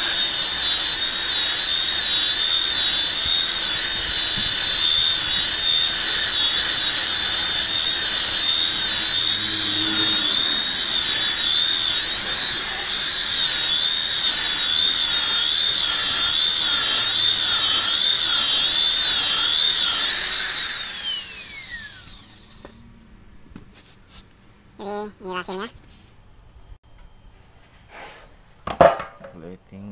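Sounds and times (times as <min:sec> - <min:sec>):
electric polisher motor whine: 0:00.0 - 0:22.9.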